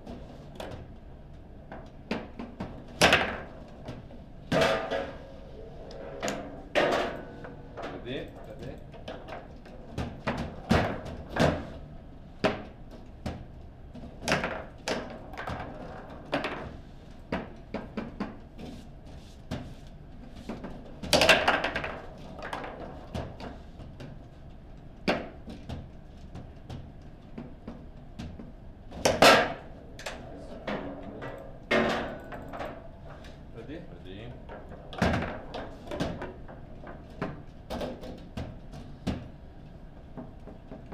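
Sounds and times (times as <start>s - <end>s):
foosball ball clacks: 1.7s - 8.0s, 12.4s - 18.8s, 19.5s - 24.4s, 25.0s - 33.4s, 34.4s - 40.9s.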